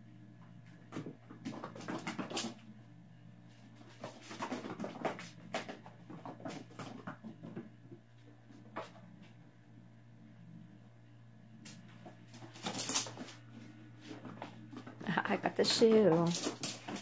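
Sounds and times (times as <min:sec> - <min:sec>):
kitten paws pattering: 0:11.6 - 0:17.0.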